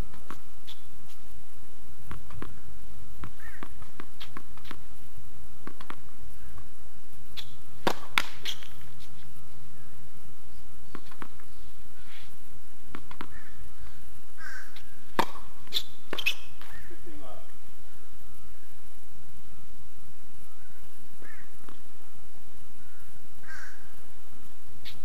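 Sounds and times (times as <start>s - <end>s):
tennis ball bouncing on hard court: 2.1s - 2.6s, 3.2s - 4.8s, 5.6s - 6.0s, 7.4s - 8.8s, 10.9s - 11.4s, 12.9s - 13.4s, 15.1s - 16.7s
racket hitting tennis ball: 7.8s - 8.8s, 15.1s - 16.7s.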